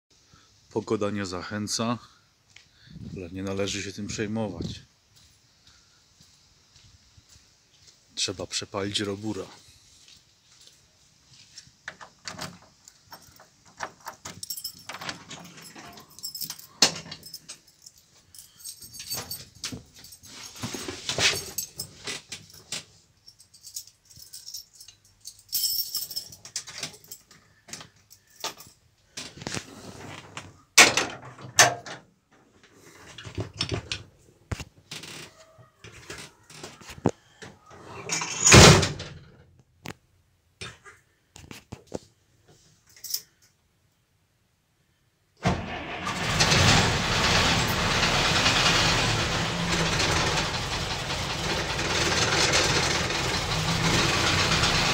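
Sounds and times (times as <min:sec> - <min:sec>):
clicks knocks and key rattles: 0:11.9 - 0:20.2, 0:21.3 - 0:28.8
truck engine starting and running: 0:45.4 - 0:54.9.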